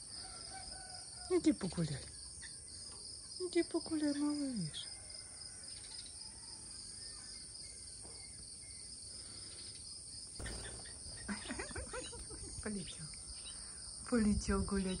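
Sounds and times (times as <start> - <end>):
insects chirring: 0.0 - 15.0.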